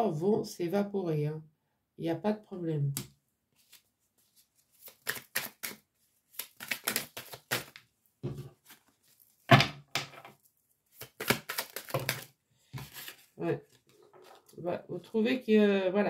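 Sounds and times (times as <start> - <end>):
cards being shuffled: 3.6 - 7.8, 10.0 - 14.5.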